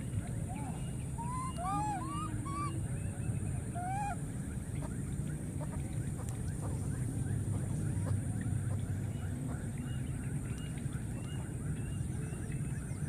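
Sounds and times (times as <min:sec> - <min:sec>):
steady low rumble: 0:00.0 - 0:13.0
macaque coo calls: 0:00.5 - 0:02.8, 0:03.7 - 0:04.2.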